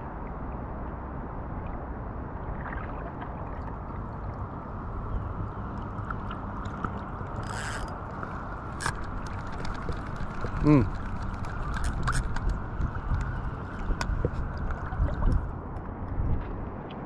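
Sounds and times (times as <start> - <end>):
fishing reel clicking: 7.4 - 8.0, 11.7 - 12.5.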